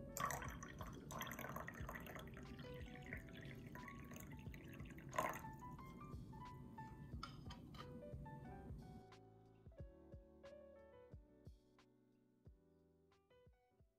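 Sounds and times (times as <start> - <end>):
drink pouring into glass mug: 0.0 - 5.6.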